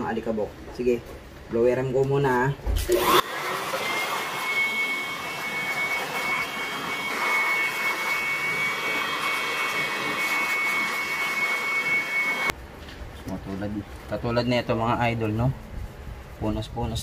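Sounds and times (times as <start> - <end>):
electric blower whining: 2.8 - 12.6.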